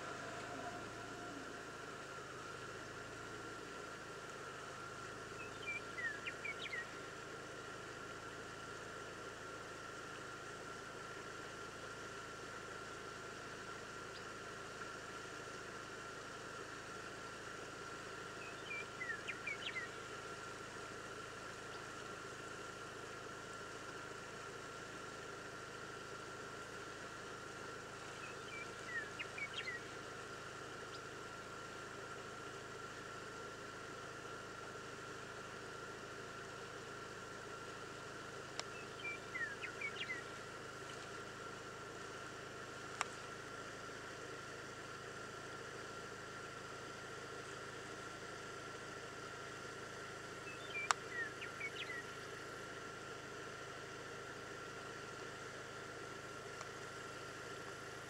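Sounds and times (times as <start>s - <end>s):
car engine idling: 0.0s - 18.4s
steady hum and hiss: 0.0s - 58.0s.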